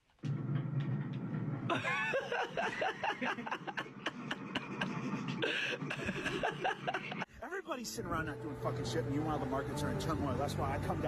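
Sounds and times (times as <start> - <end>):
people snickering and chuckling: 1.7 - 7.3.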